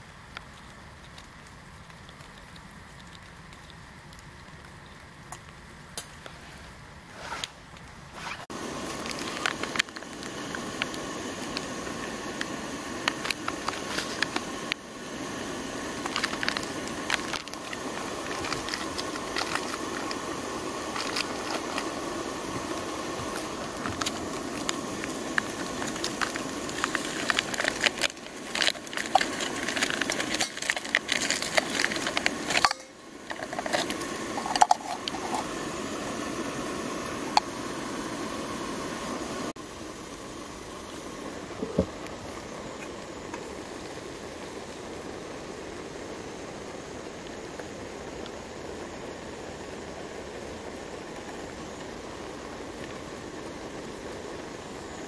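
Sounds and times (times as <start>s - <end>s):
steady hiss: 0.0s - 55.0s
foil sachet crinkling and tearing: 15.9s - 22.0s, 22.6s - 35.4s.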